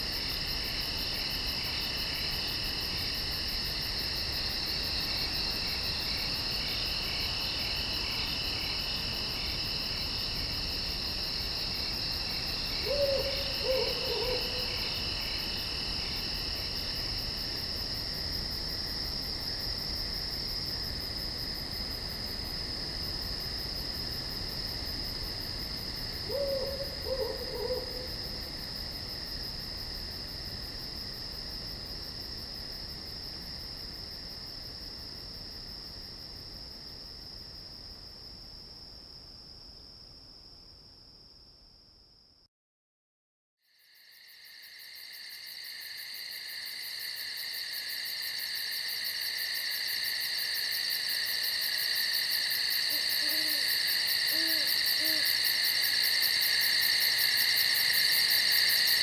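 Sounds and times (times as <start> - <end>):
night insects chorus: 0.0 - 41.3, 43.6 - 59.0
owl hooting: 12.8 - 14.8, 26.3 - 28.1, 52.9 - 55.4.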